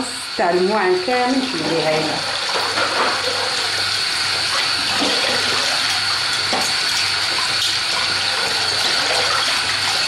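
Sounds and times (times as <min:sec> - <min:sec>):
tap running into basin: 0:00.0 - 0:10.0
cutlery rinsed splashing: 0:01.4 - 0:03.9, 0:04.5 - 0:10.0.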